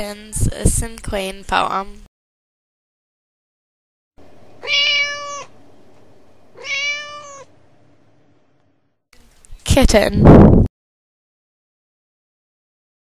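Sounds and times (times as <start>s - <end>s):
kitten meowing: 4.6s - 5.6s, 6.6s - 7.5s.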